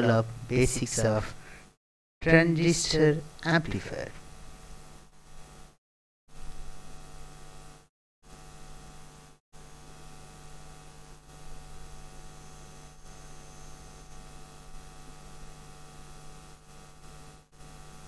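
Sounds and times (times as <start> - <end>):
electrical mains hum with hiss: 0.0 - 18.0.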